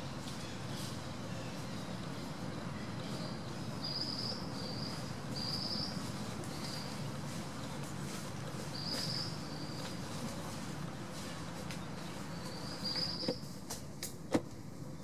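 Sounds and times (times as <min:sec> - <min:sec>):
steady outdoor hiss: 0:00.0 - 0:15.0.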